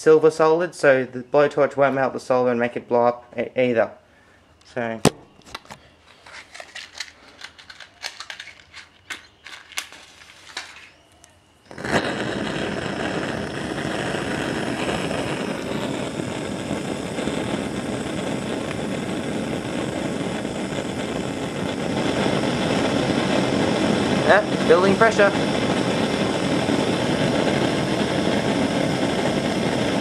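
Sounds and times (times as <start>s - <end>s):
blowtorch hissing: 6.3s - 30.0s.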